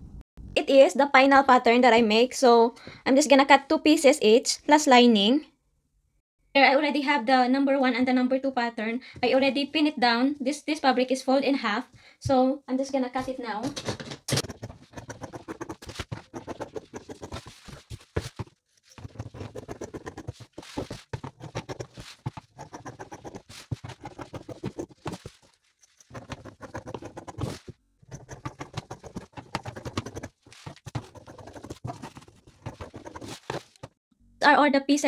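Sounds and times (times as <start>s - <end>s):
scissors cutting fabric: 14.3s - 34.0s
fabric rustling: 17.2s - 19.1s, 20.3s - 21.2s.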